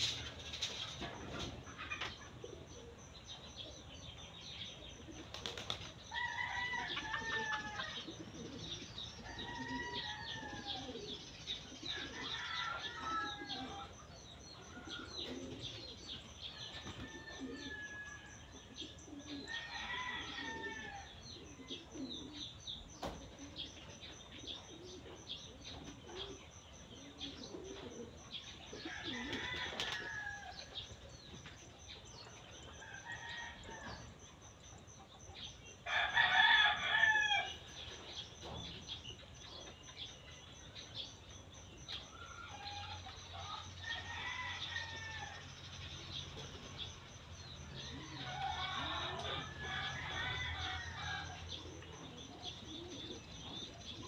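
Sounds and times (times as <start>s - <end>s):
small birds chirping: 0.0s - 54.0s
chickens clucking: 6.6s - 18.0s, 18.7s - 30.4s.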